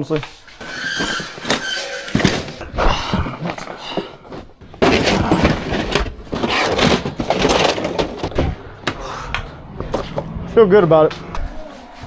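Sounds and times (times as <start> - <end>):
wooden case handling rustling: 3.5 - 8.7.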